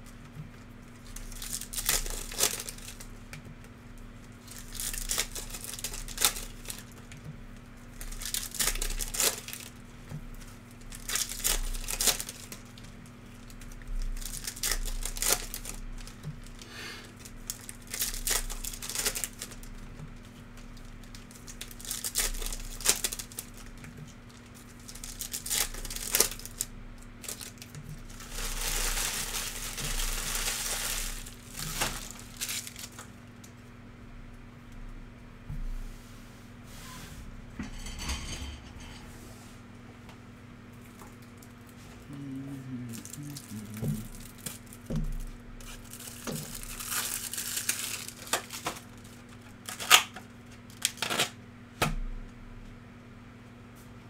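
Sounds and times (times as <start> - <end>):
low electrical hum: 0.0 - 54.0
wrappers being torn and crinkled: 1.0 - 3.1, 4.2 - 33.5, 42.9 - 51.4.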